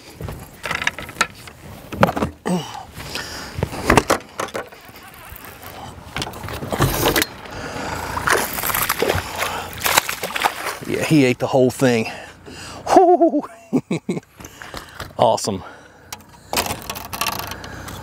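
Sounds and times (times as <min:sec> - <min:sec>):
fishing gear knocking and rattling: 0:00.3 - 0:02.4, 0:03.8 - 0:07.5, 0:08.3 - 0:10.8, 0:16.2 - 0:18.0.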